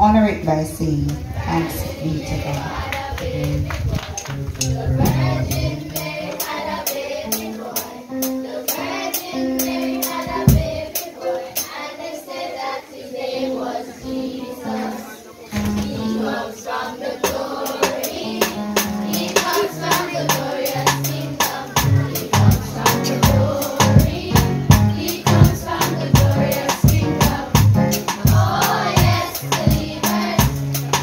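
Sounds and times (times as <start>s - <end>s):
musical accompaniment: 2.2s - 12.1s, 13.4s - 31.0s
steady percussion beat: 4.6s - 11.7s, 17.3s - 31.0s
children singing: 4.6s - 31.0s.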